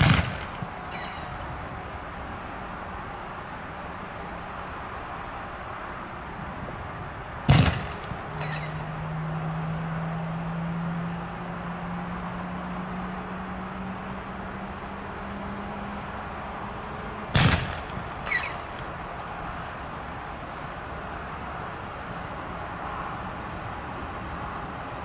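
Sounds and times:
loud sharp bangs: 0.0 - 0.8, 7.5 - 8.7, 17.3 - 18.8
jet engines rumbling: 0.0 - 11.6, 12.2 - 25.0.

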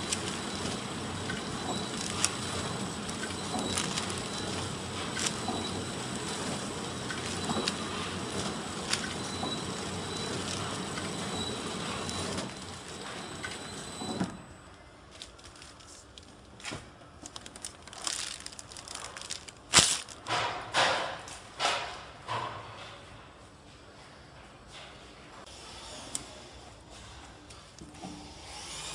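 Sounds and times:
packing machine whirring: 0.0 - 20.7
plastic film rustling: 1.8 - 5.5, 15.1 - 20.3
sharp plastic crackle: 1.9 - 5.5, 15.1 - 20.4.

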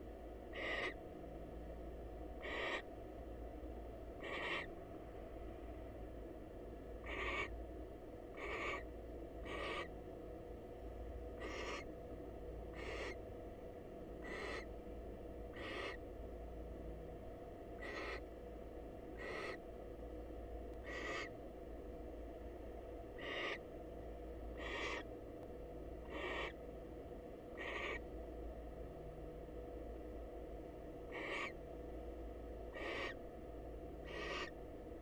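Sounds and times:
faint electrical hum: 0.0 - 35.0
barn owl raspy hissing calls: 0.5 - 1.0, 2.4 - 2.9, 4.2 - 4.7, 7.0 - 7.6, 8.3 - 10.0, 11.4 - 11.9, 12.7 - 13.2, 14.2 - 14.7, 15.5 - 16.0, 17.8 - 18.3, 19.2 - 19.6, 20.8 - 21.4, 23.2 - 23.6, 24.5 - 25.1, 26.0 - 26.6, 27.5 - 28.0, 31.1 - 31.6, 32.7 - 33.2, 34.0 - 34.6.

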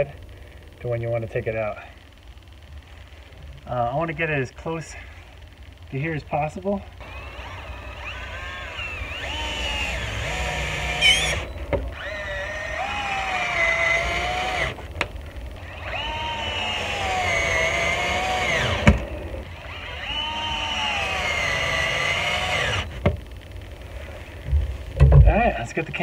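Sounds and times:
power drill whining: 6.9 - 24.4.

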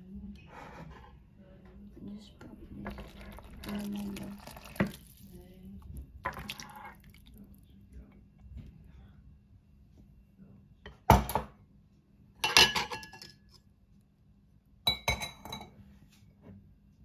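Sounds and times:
dishes clinking: 12.4 - 13.6, 14.9 - 15.8.

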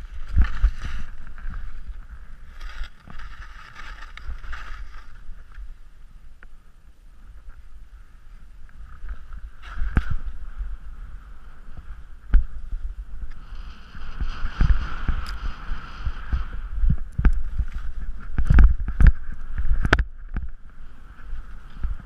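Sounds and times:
skis sliding on snow: 0.0 - 6.0, 7.3 - 19.9, 20.7 - 22.0
wind buffeting microphone: 7.2 - 22.0.

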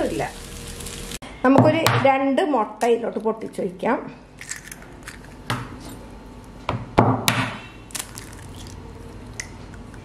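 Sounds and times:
egg shell clicking apart: 7.9 - 10.0.

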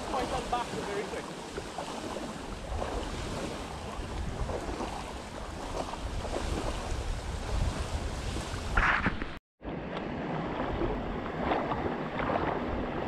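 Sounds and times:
surf washing: 0.0 - 13.0
wind buffeting microphone: 1.6 - 13.0.

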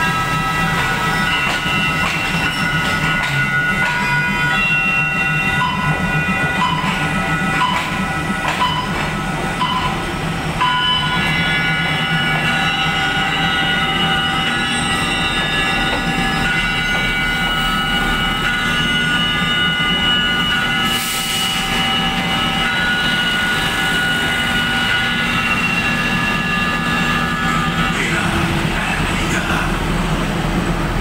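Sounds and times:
train wheels squealing: 0.0 - 29.6.

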